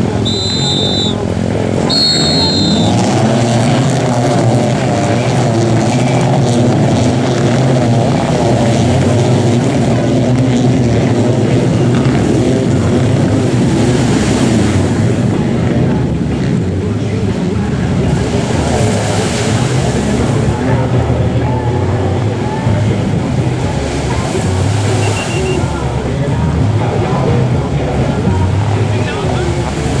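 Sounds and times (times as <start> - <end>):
jet ski engines revving: 0.0 - 30.0
short high tone: 0.2 - 1.2, 1.8 - 3.0, 25.0 - 25.7.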